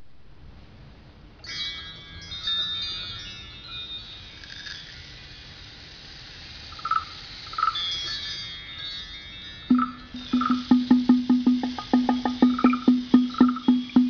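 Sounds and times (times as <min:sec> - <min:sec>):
bell-like chimes ringing: 0:01.4 - 0:05.2, 0:07.9 - 0:14.0.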